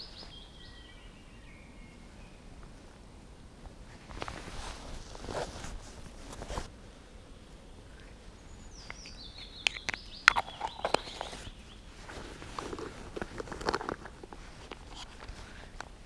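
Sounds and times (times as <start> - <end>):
songbird singing: 0.0 - 4.4, 6.0 - 16.0
rustling handling noise: 3.9 - 6.7, 8.9 - 16.0.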